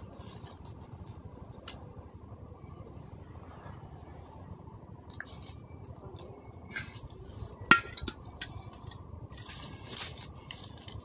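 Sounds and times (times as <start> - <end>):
soft scrapes and rustles: 8.7 - 11.0.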